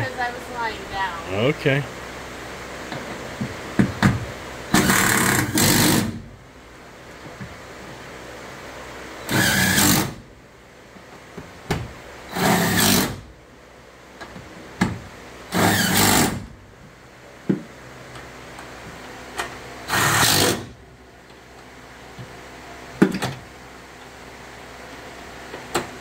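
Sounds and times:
cordless drill driving screws: 0:04.8 - 0:06.1, 0:09.3 - 0:10.1, 0:12.3 - 0:13.2, 0:15.5 - 0:16.4, 0:19.9 - 0:20.7.

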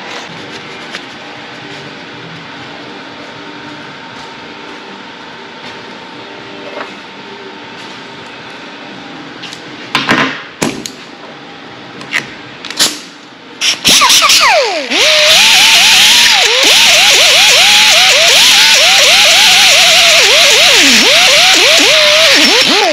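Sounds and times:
pneumatic grinder whining: 0:13.6 - 0:22.9.

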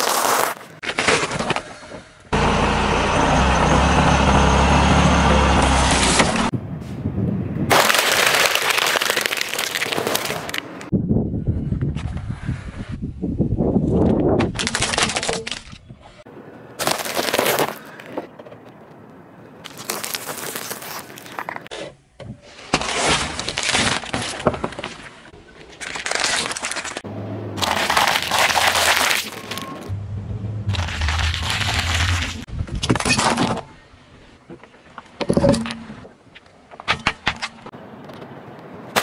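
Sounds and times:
tyre crushing objects on asphalt: 0:00.0 - 0:01.6, 0:07.7 - 0:10.7, 0:16.8 - 0:18.1, 0:19.7 - 0:21.7, 0:27.6 - 0:29.9.

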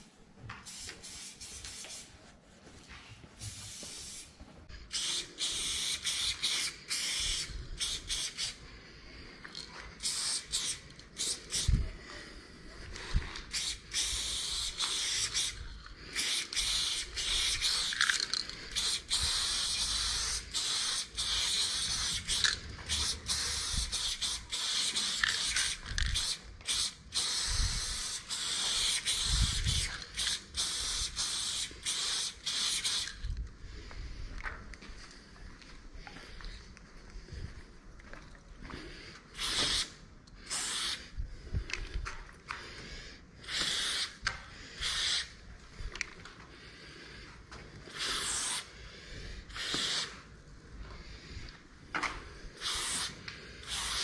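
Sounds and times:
spray paint can hissing: 0:00.6 - 0:02.1, 0:03.4 - 0:04.3, 0:04.9 - 0:08.6, 0:10.0 - 0:11.8, 0:13.1 - 0:33.2, 0:39.4 - 0:41.0, 0:43.4 - 0:45.4, 0:47.9 - 0:48.7, 0:49.5 - 0:50.2, 0:52.6 - 0:54.0.

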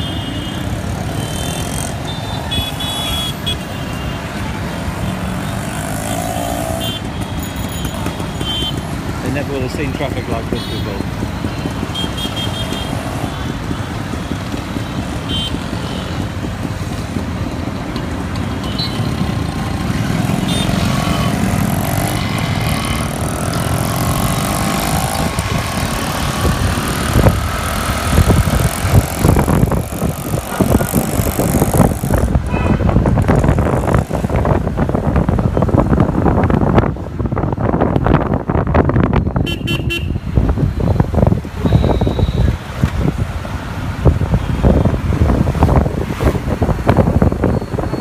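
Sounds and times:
wind buffeting microphone: 0:22.6 - 0:48.0
horn toots: 0:39.4 - 0:40.2.

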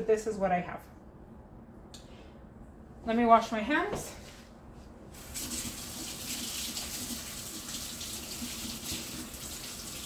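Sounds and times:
faucet water running: 0:05.2 - 0:10.0.

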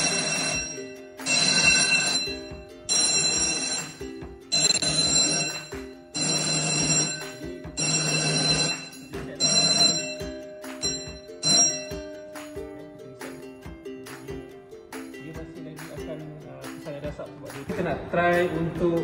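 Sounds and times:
electric fire alarm bell ringing: 0:00.0 - 0:12.4.

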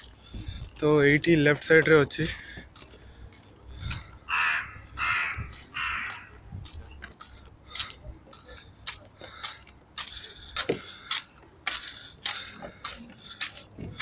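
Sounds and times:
crow cawing: 0:04.3 - 0:06.4.

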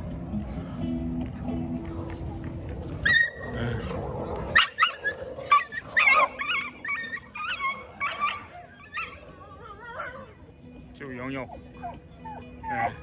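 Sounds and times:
dogs yelping and whining: 0:02.8 - 0:10.6, 0:11.4 - 0:13.0.

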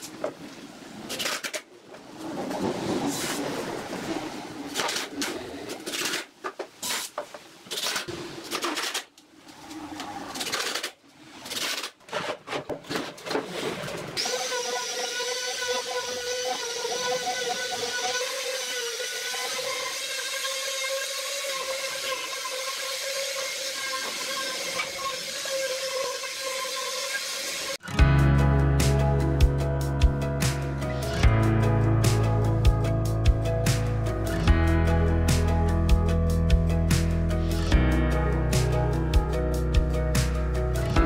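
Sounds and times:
electric power tool whining: 0:14.2 - 0:27.9.

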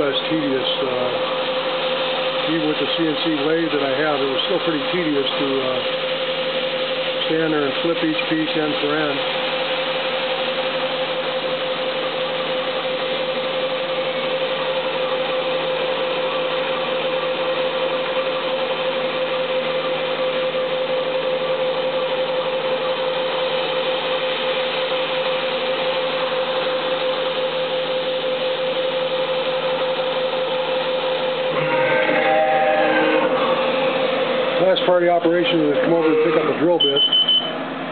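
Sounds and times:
milling machine cutting: 0:00.0 - 0:11.2, 0:26.1 - 0:37.7
steady machine whine: 0:00.0 - 0:37.9.

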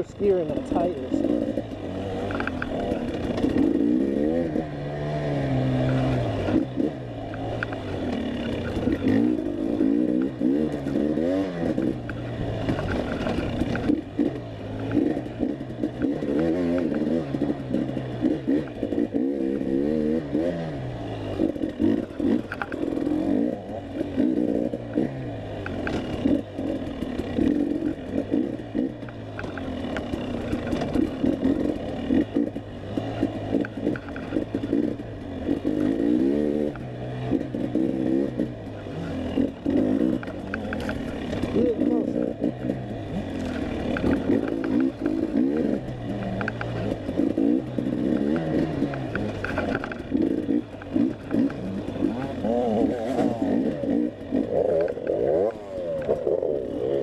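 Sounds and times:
dirt bike engine revving: 0:00.0 - 0:57.0
clatter and knocks: 0:11.7 - 0:17.9, 0:25.6 - 0:35.9, 0:43.4 - 0:52.3.

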